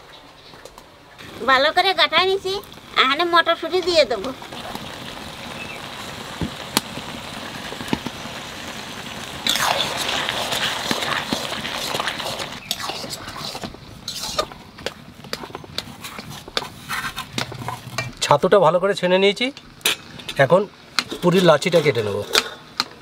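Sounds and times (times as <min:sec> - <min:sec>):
curry sizzling in a pan: 0:01.1 - 0:23.0
spatula stirring and scraping: 0:09.5 - 0:18.3.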